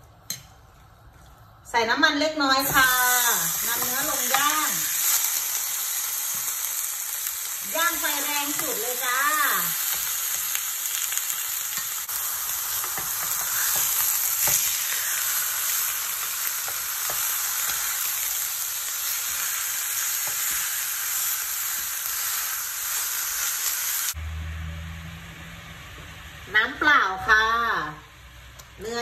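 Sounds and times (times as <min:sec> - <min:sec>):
steaks sizzling on grill pan: 0:02.6 - 0:24.2.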